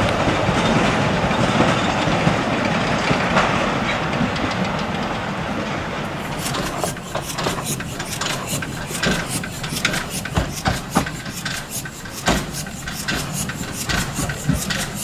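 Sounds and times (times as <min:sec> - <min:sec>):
steam locomotive running gear clanking: 0:06.0 - 0:15.0
steady low hum: 0:06.1 - 0:15.0.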